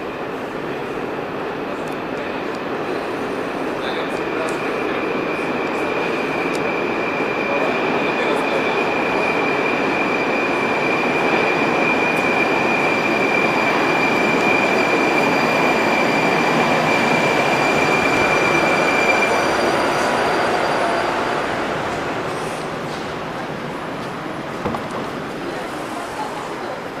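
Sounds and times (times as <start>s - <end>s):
metro train wheels rumbling: 0.0s - 27.0s
high brake squeal: 4.8s - 23.0s.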